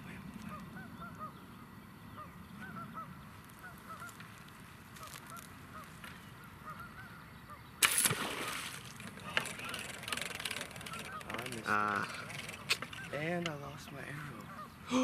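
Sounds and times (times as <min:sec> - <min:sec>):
birds calling: 0:00.0 - 0:15.0
bow shot snap: 0:07.8 - 0:08.6.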